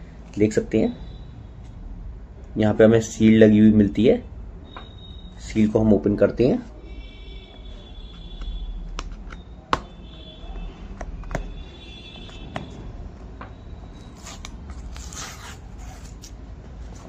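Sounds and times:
fingers scraping cardboard: 14.0 - 17.0
sticker peeling rustle: 14.0 - 17.0.

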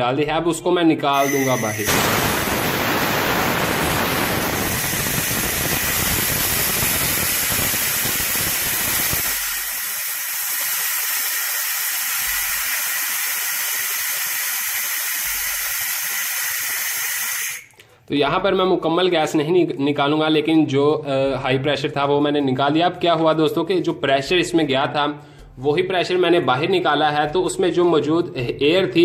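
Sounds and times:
gas hissing from valve: 1.2 - 17.8.

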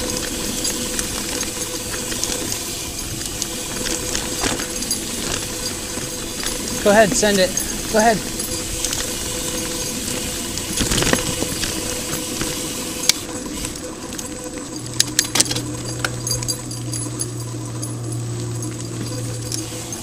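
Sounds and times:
bike chain rattling: 0.0 - 20.0
bike rolling on dirt trail: 0.0 - 20.0.

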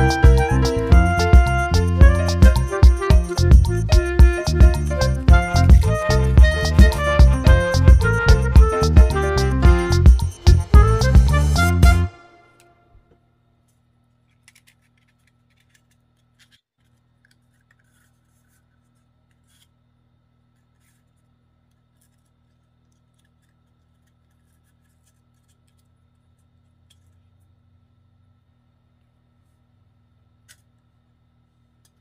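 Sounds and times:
paper rustling and crinkling: 13.7 - 19.8, 20.5 - 26.0.

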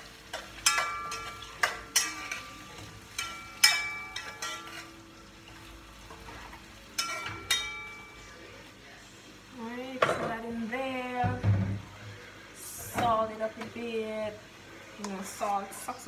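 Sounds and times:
metal utensil clinking on pot: 0.3 - 4.9, 7.0 - 8.2.

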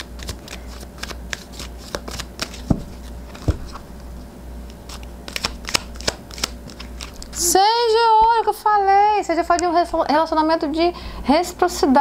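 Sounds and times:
cards being shuffled: 0.0 - 3.9, 4.7 - 7.4.

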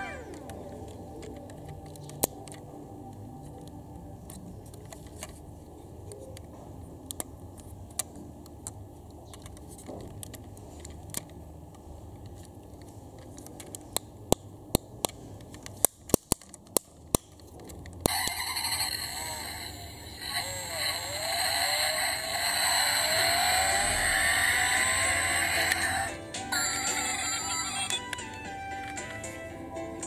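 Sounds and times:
low background noise: 0.0 - 30.0
model car parts clicking: 12.2 - 26.1.

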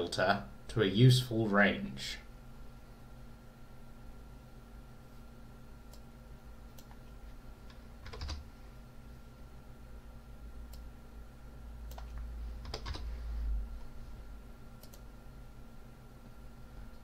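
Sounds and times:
low steady hum: 0.0 - 17.0
computer keyboard typing: 7.7 - 8.5, 11.8 - 13.1.

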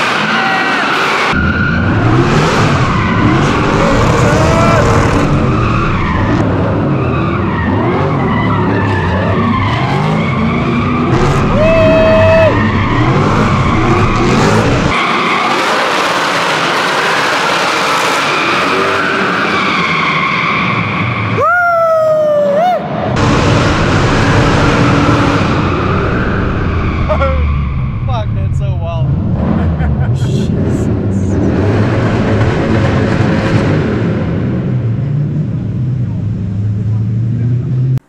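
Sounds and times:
car engine revving: 0.0 - 21.1, 23.1 - 38.0
tyres skidding: 0.0 - 21.6
high tyre squeal: 0.0 - 21.7, 24.4 - 28.1.

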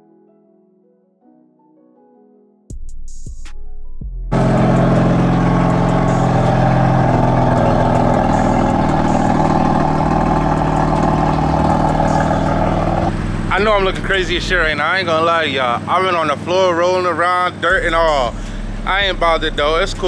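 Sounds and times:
car engine idling: 4.3 - 20.0.

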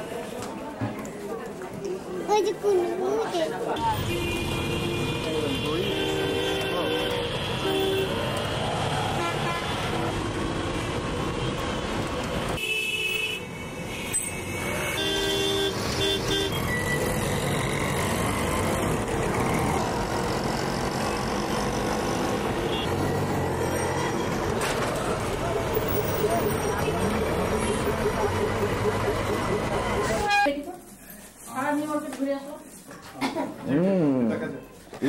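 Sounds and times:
road traffic engines: 0.0 - 31.2
vehicle horn honks: 4.0 - 8.2, 12.6 - 16.6, 29.9 - 30.6.

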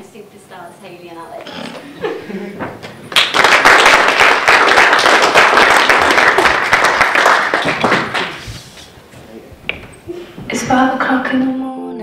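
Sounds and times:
audience applauding: 2.8 - 8.6.

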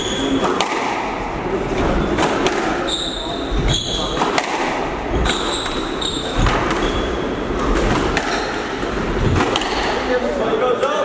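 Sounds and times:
shoes squeaking: 0.0 - 0.6, 1.7 - 10.0
squash ball struck by rackets: 0.3 - 1.3, 2.1 - 2.9, 3.7 - 10.1.

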